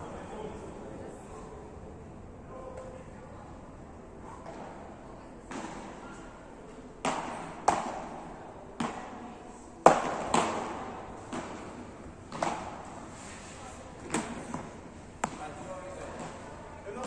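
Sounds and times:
paddles striking ball: 0:07.0 - 0:09.1, 0:09.8 - 0:12.9, 0:14.0 - 0:16.4.

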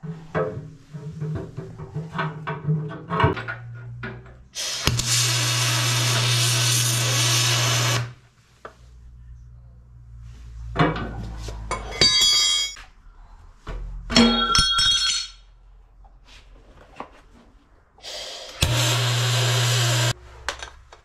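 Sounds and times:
welding arc buzzing: 0:04.6 - 0:08.2, 0:18.5 - 0:20.2
sharp metallic clinks: 0:11.8 - 0:12.8, 0:14.2 - 0:15.5.

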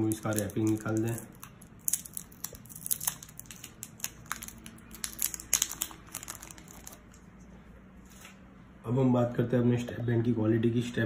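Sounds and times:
plastic film peeling crinkling: 0:00.0 - 0:07.3.

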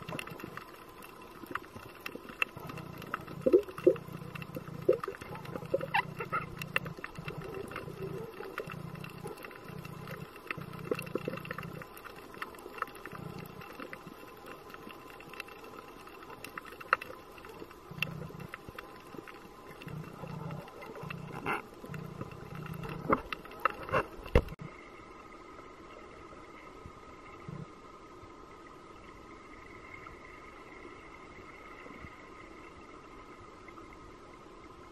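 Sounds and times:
clicks and crackles: 0:00.0 - 0:24.6
underwater low rumble: 0:00.0 - 0:34.9.

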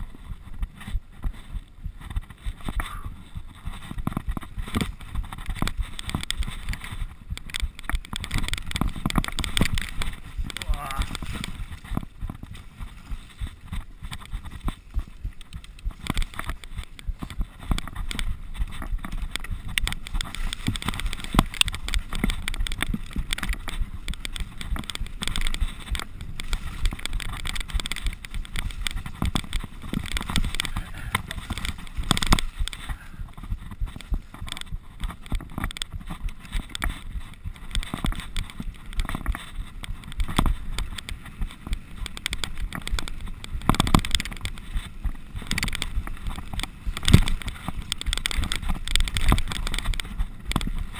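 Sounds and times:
bike clattering over bumps: 0:00.0 - 0:50.9
tyre noise on dirt: 0:00.0 - 0:50.9.

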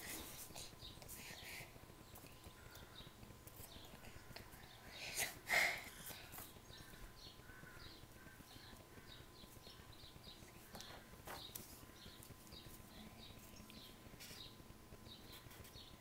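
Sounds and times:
small bird chirps: 0:06.1 - 0:16.0.

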